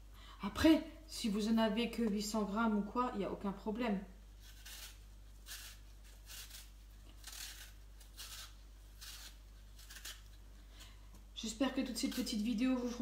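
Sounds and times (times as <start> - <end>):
blade scraping apple skin: 4.4 - 11.0, 11.6 - 13.0.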